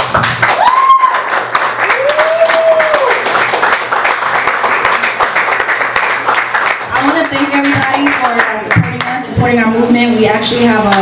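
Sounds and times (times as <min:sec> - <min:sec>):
audience applauding: 0:00.0 - 0:09.2
person cheering: 0:00.4 - 0:03.3.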